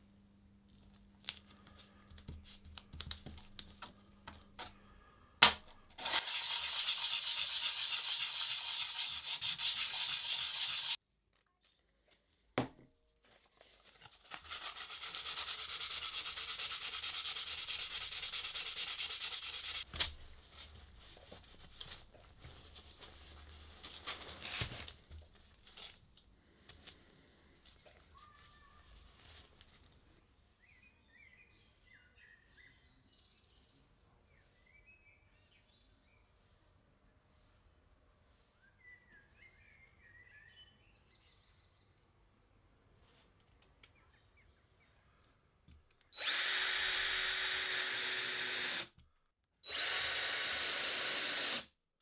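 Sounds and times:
blade scrubbing on abrasive paper: 0:06.0 - 0:11.0, 0:14.2 - 0:19.9.

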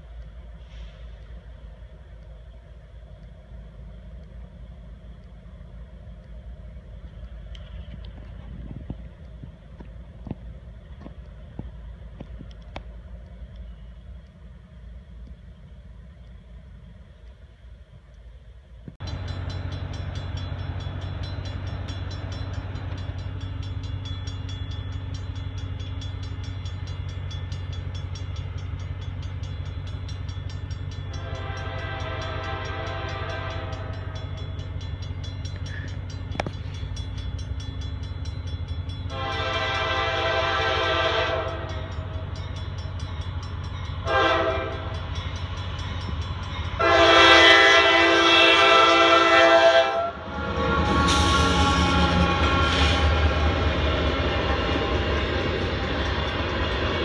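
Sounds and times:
train rumble: 0:00.0 - 0:57.0
crossing warning bell ringing: 0:19.0 - 0:57.0
locomotive horn blasts: 0:31.1 - 0:34.2, 0:39.1 - 0:41.9, 0:44.0 - 0:45.0, 0:46.8 - 0:53.4.

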